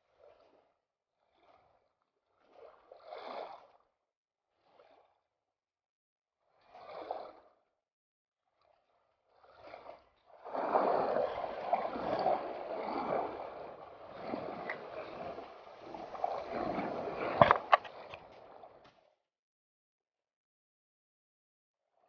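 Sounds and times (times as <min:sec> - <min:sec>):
sea water sloshing and lapping: 0:00.1 - 0:05.3, 0:06.5 - 0:07.7, 0:08.6 - 0:19.1.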